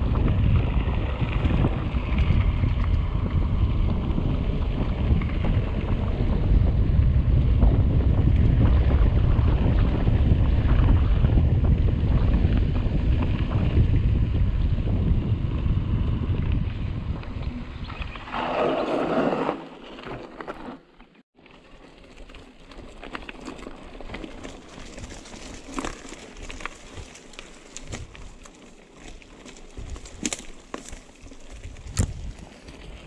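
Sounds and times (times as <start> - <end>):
bike clicks and rattles: 0.0 - 18.0, 21.4 - 33.0
wind buffeting microphone: 0.0 - 19.1, 29.0 - 33.0
tyres crunching on dirt: 18.3 - 33.0.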